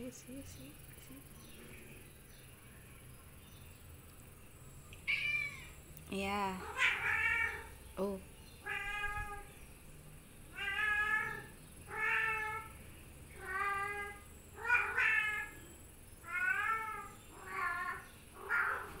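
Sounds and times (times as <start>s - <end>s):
cat meowing: 5.0s - 5.8s, 6.6s - 7.7s, 8.6s - 9.5s, 10.5s - 12.7s, 13.4s - 15.6s, 16.2s - 19.0s.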